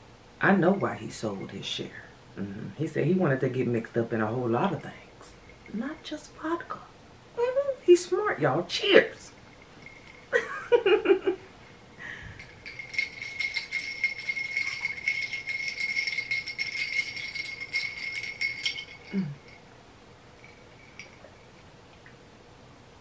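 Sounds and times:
glass ringing: 5.3s - 6.2s, 9.3s - 19.7s, 20.4s - 21.7s
metal straw clinking in glass: 9.4s - 10.4s, 12.4s - 19.6s, 20.4s - 21.6s.

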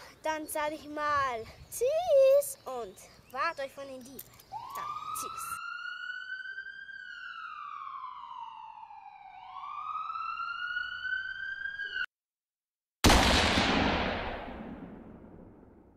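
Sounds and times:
police siren wailing: 4.5s - 12.1s.

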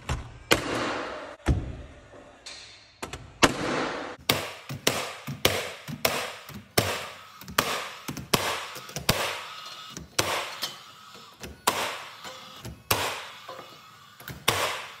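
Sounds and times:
nail gun firing into wood: 3.4s - 9.5s, 10.1s - 10.7s, 11.5s - 13.5s, 14.2s - 15.0s.

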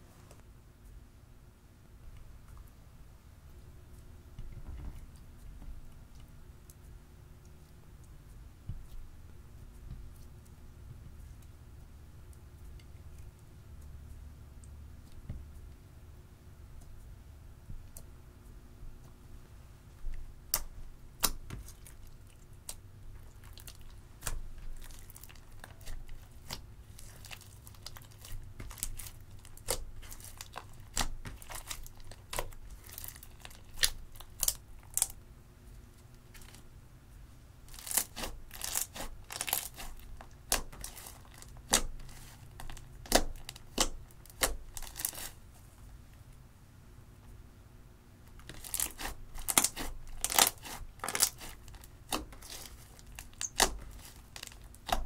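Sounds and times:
hands squishing slime: 20.4s - 35.2s, 37.7s - 45.4s, 48.4s - 55.0s.

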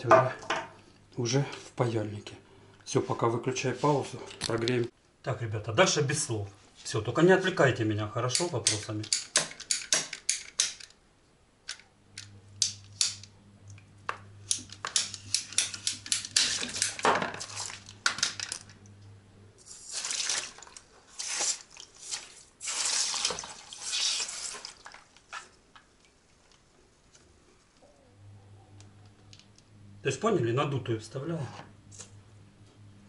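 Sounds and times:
metal tool clicking on pipe: 8.3s - 11.0s
water spurting into basin: 19.6s - 26.2s.

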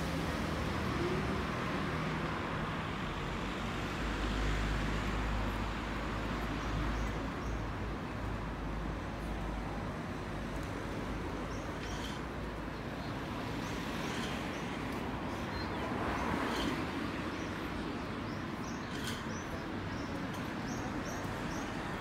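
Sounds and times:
road traffic hum: 0.0s - 22.0s
small birds chirping: 11.4s - 21.8s.

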